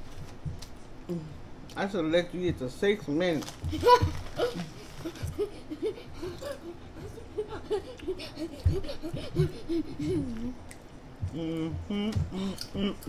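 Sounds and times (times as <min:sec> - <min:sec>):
person laughing: 0:03.7 - 0:10.6.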